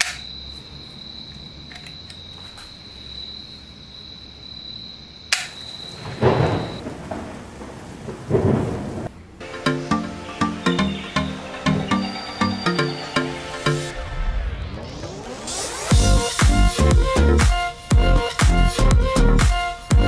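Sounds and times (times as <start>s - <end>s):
sharp click: 0.0s - 0.3s, 5.3s - 5.6s
rain-like hiss: 5.4s - 9.4s
thunder rolling: 5.7s - 9.4s
electronic music with steady beat: 9.4s - 20.0s.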